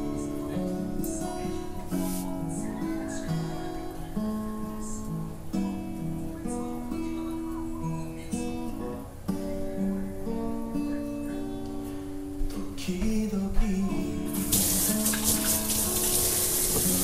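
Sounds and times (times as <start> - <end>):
acoustic guitar music: 0.0 - 17.0
kitchen tap running: 14.3 - 17.0.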